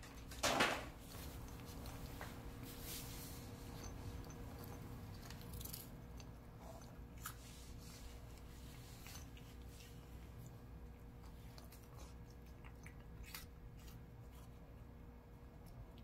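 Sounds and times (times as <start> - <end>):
low steady hum: 0.0 - 16.0
cat crunching food: 0.2 - 16.0.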